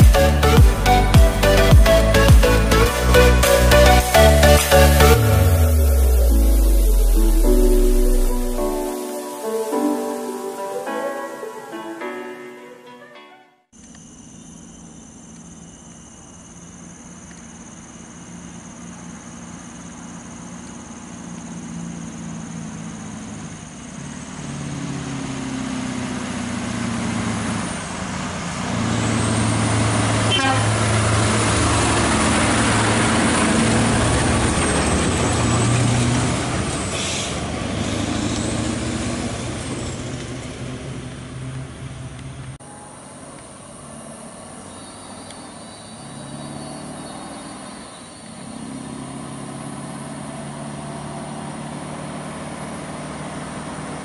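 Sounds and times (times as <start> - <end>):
diesel truck engine passing: 0.0 - 12.8, 16.3 - 54.0
high whistle: 0.0 - 17.0
distant truck engine: 13.8 - 54.0.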